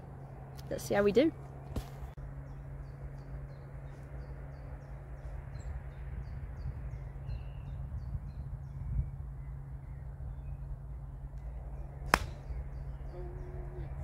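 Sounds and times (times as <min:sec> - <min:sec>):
low hum and rumble: 0:00.0 - 0:14.0.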